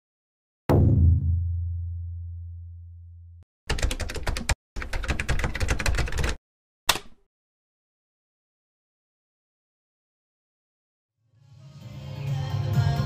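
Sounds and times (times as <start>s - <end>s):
sharp hit: 0.7s - 2.5s
keyboard key clicks: 6.9s - 7.2s.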